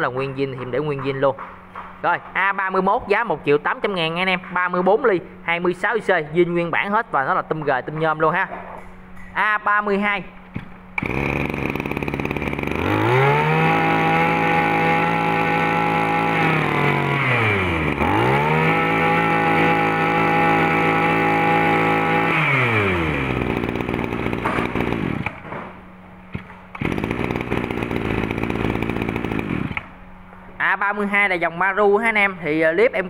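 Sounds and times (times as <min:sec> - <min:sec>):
brush cutter engine revving: 0:11.0 - 0:25.4, 0:26.4 - 0:29.9.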